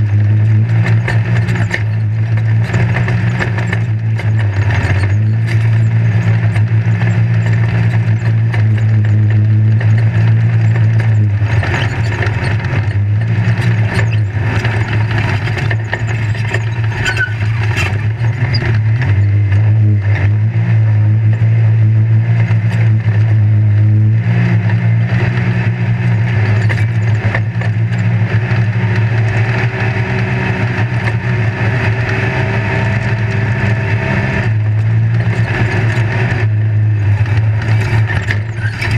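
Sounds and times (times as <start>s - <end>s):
chassis knocks and rattles: 0.0s - 20.3s, 24.6s - 29.7s, 37.0s - 38.9s
engine droning: 0.0s - 38.9s.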